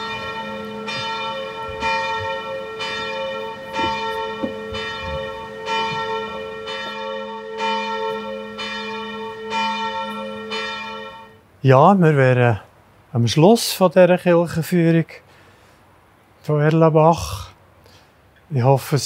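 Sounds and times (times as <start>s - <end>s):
church bells ringing: 0.0s - 11.4s.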